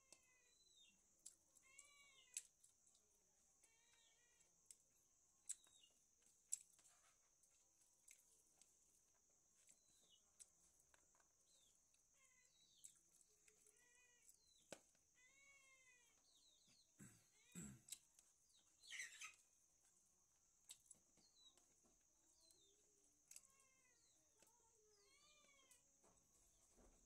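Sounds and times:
mouth smacks and clicks eating: 4.6 - 6.9, 20.6 - 21.7.

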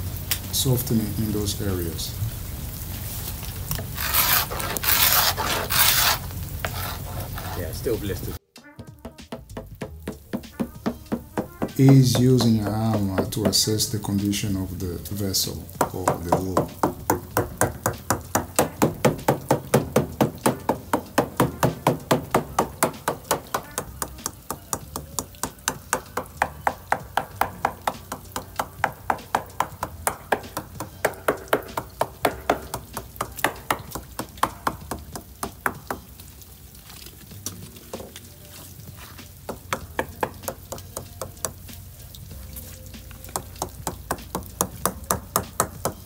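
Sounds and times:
hammer tapping boat hull: 9.0 - 13.7, 15.7 - 36.1, 39.5 - 41.6, 43.2 - 46.0.

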